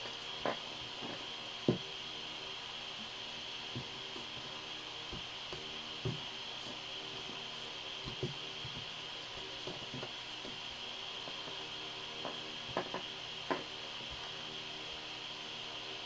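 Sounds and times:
steady hiss: 0.0 - 16.0
dough handling noise: 3.6 - 14.3.

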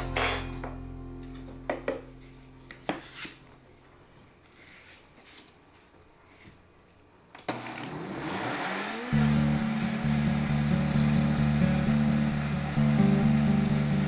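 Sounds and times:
blender motor whirring: 7.5 - 13.0.

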